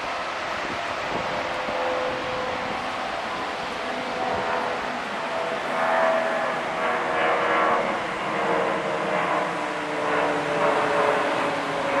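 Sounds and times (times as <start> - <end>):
surf washing: 0.0 - 8.5
aircraft engine drone: 0.0 - 12.0.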